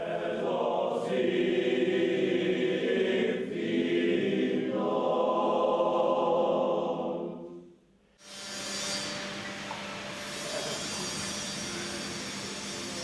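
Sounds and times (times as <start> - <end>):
choir singing: 0.0 - 7.8.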